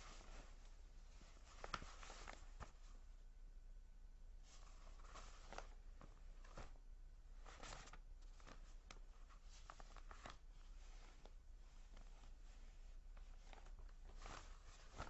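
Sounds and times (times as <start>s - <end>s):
paper rustling and scraping: 4.5s - 6.8s, 7.4s - 15.0s.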